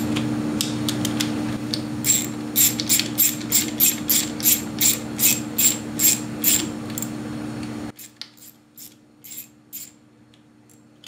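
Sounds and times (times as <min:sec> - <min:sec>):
steady background hum: 0:00.0 - 0:11.0
ratcheting screwdriver clicking: 0:02.1 - 0:06.7.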